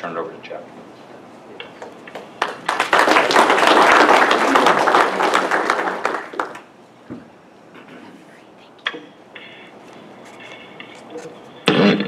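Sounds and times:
audience applauding: 1.8s - 6.7s.

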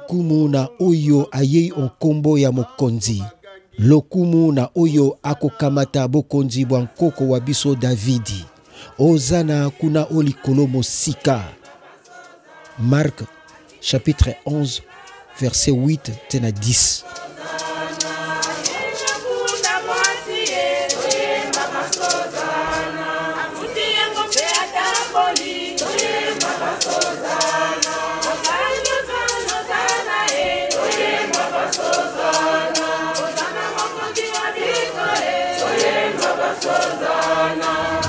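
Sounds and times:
crowd singing a hymn: 5.4s - 38.0s
steady percussive beat: 9.0s - 38.0s.

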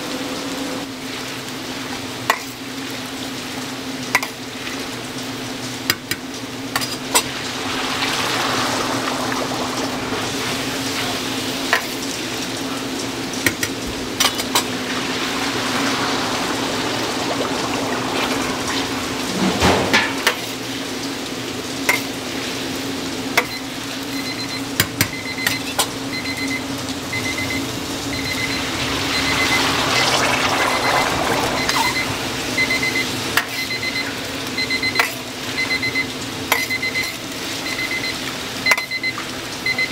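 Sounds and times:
food deep-frying in oil: 0.0s - 39.9s
metal utensils clinking on pan: 13.5s - 14.7s
electronic beeper beeping: 24.2s - 35.0s, 36.6s - 39.9s.

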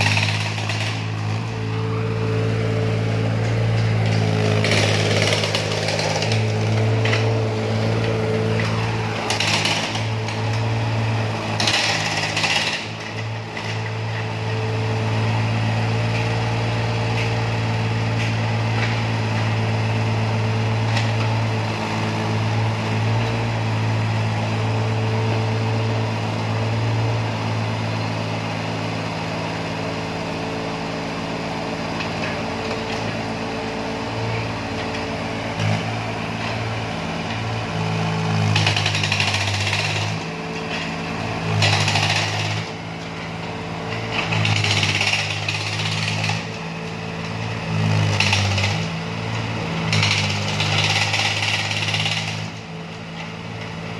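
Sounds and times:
hydraulic breaker hammering concrete: 0.0s - 1.7s, 3.0s - 14.4s, 37.3s - 52.7s
diesel engine running: 0.0s - 53.9s.

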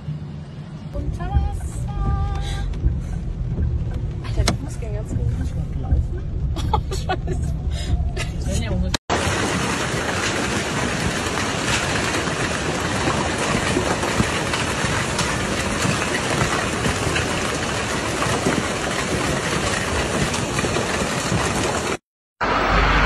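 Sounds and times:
heavy rain pounding: 1.0s - 8.4s, 9.1s - 23.0s.

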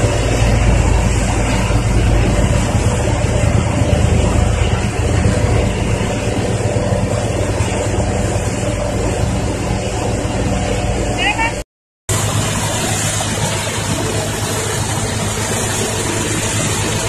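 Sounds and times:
road roller diesel engine: 0.0s - 17.0s.

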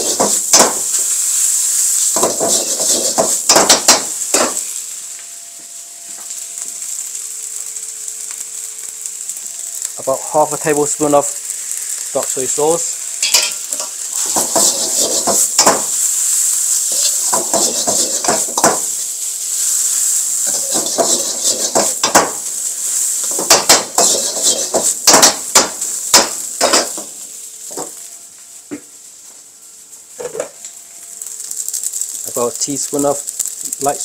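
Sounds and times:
food sizzling: 0.0s - 34.0s
metal utensils scraping a wok: 2.2s - 4.6s, 13.2s - 15.8s, 16.8s - 18.8s, 20.4s - 22.2s, 23.2s - 24.9s.

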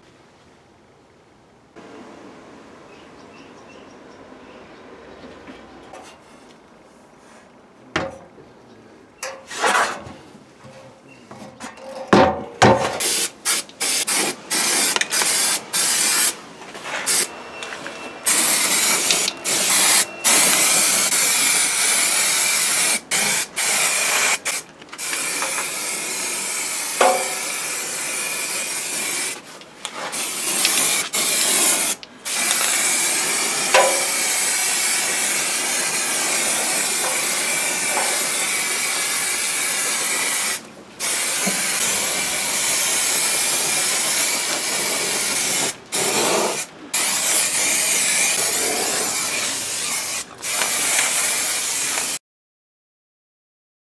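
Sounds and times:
spray paint can hissing: 13.0s - 16.4s, 17.0s - 17.3s, 18.2s - 52.2s.

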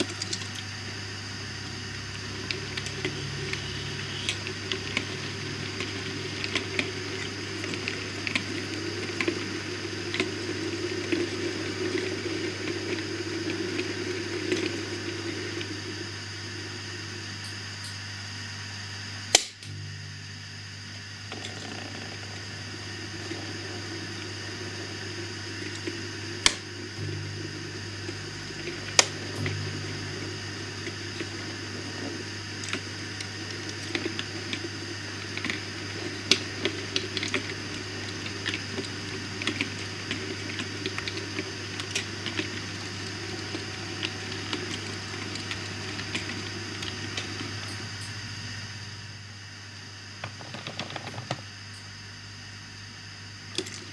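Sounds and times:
model train wheels rumbling: 2.2s - 17.4s, 21.3s - 47.8s
sharp clicks: 19.3s - 19.8s.

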